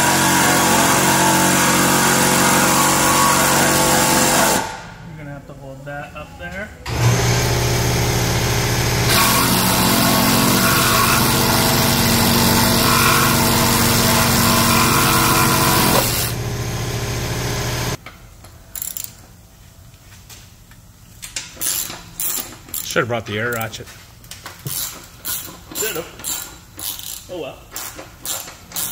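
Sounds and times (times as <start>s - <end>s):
reciprocating saw motor: 0.0s - 4.7s, 6.9s - 18.0s
saw blade rasping through metal: 0.0s - 4.7s, 9.1s - 16.3s.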